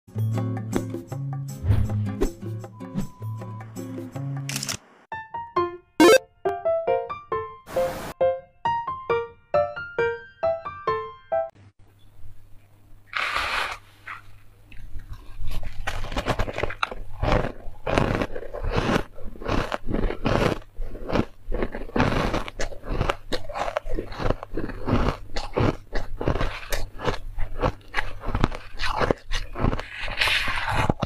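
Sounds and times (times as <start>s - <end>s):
person crunching ice: 15.0s - 31.0s.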